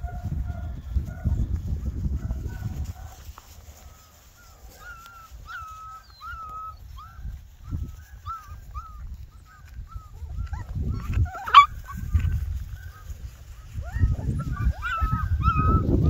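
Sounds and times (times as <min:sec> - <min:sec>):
puppy yelp: 0:04.2 - 0:16.0
puppy whimpering: 0:04.8 - 0:13.1, 0:13.8 - 0:16.0.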